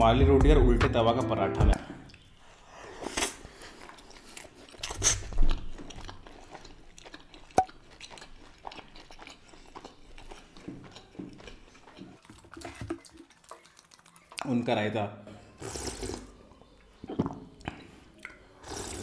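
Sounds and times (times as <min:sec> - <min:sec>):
close chewing: 0:02.0 - 0:14.9.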